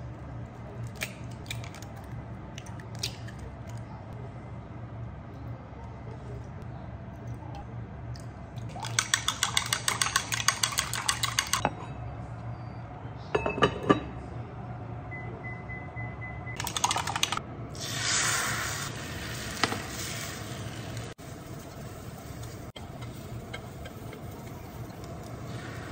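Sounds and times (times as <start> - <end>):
whisk clinking against glass jug: 8.7 - 11.6
induction hob beep: 15.1 - 16.6.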